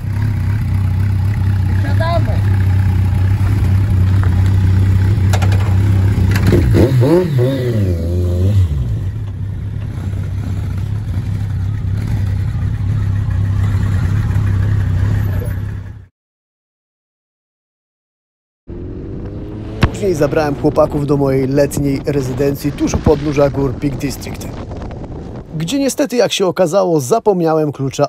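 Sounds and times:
motorcycle engine revving: 0:00.0 - 0:16.1, 0:18.7 - 0:23.6.

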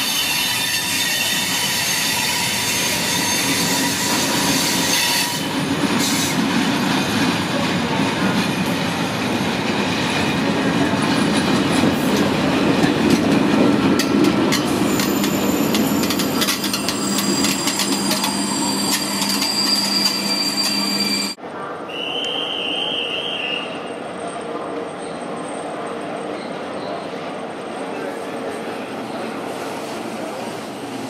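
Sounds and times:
high wheel squeal: 0:00.0 - 0:06.2, 0:14.8 - 0:24.0
train wheels rumbling on rails: 0:00.0 - 0:21.4.

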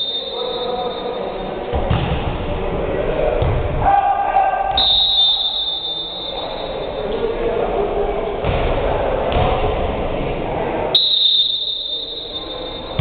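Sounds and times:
players calling out: 0:02.8 - 0:08.3
volleyball thumps: 0:03.4 - 0:03.8.

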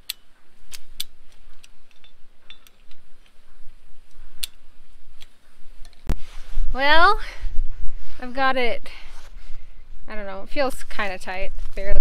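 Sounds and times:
wire ratchet metallic clicks: 0:00.0 - 0:03.4
wind rumble on microphone: 0:00.5 - 0:12.0.

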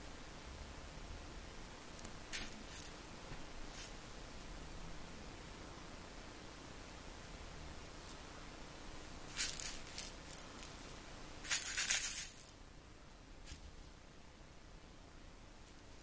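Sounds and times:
cat toy ball rattling: 0:09.3 - 0:10.8.

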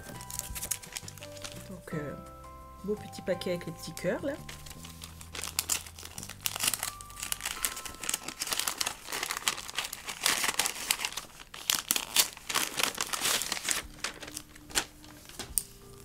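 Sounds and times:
paper wrapping crinkling: 0:00.0 - 0:16.0.

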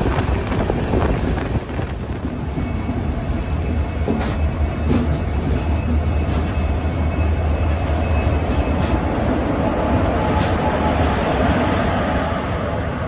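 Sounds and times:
train rumbling on rails: 0:00.0 - 0:13.0
faint wheel squeal: 0:01.9 - 0:11.4.

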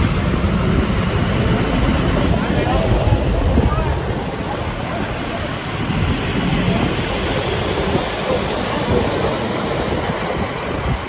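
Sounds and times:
low engine rumble: 0:00.0 - 0:11.0
tyres hissing on wet road: 0:00.0 - 0:11.0
wind on microphone: 0:00.0 - 0:11.0.

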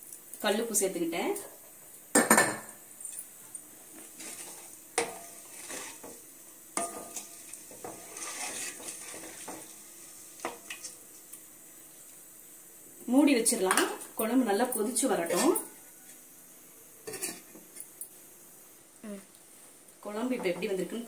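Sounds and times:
wooden spatula scraping metal pot: 0:04.2 - 0:06.2, 0:06.8 - 0:09.7.

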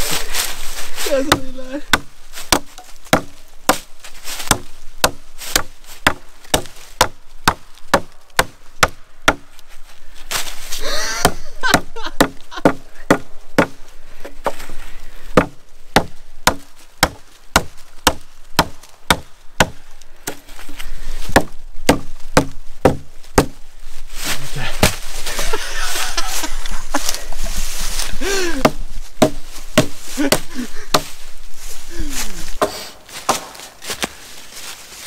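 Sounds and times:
axe chopping wood: 0:01.3 - 0:09.5, 0:11.2 - 0:14.6, 0:15.4 - 0:20.4, 0:21.3 - 0:23.6, 0:24.8 - 0:25.0, 0:28.5 - 0:31.1, 0:32.6 - 0:34.1.

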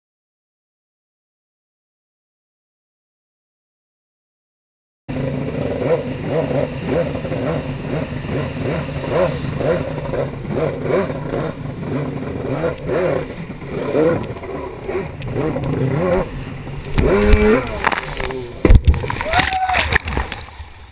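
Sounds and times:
jet ski engine surging: 0:05.1 - 0:20.9
water rushing against hull: 0:05.1 - 0:20.9.

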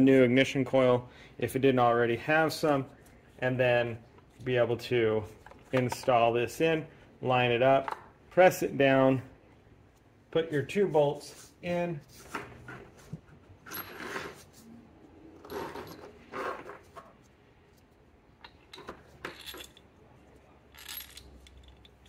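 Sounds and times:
gloved hands scraping: 0:10.6 - 0:18.0.

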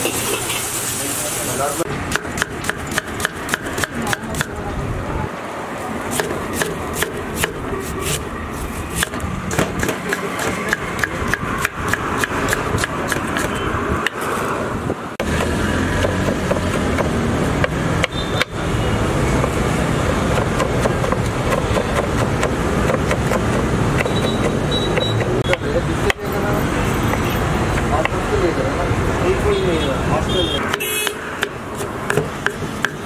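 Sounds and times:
steady noisy background: 0:00.0 - 0:33.0
knife chopping on wooden board: 0:09.0 - 0:14.2, 0:15.2 - 0:18.5, 0:20.3 - 0:26.2, 0:30.7 - 0:33.0.

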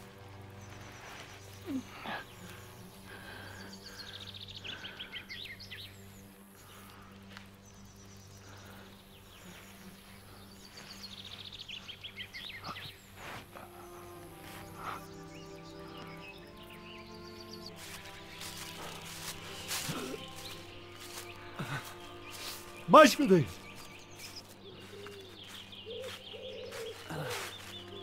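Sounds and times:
songbird trilling: 0:22.2 - 0:28.0.

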